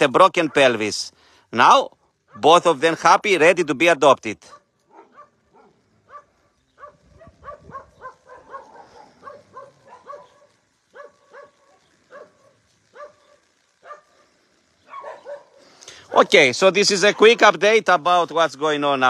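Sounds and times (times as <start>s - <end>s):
distant dog barking: 0.3s - 0.8s, 4.5s - 16.4s.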